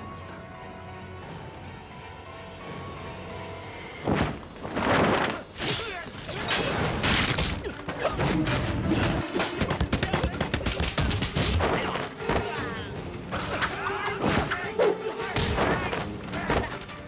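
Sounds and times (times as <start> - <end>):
people shouting: 9.1 - 17.0.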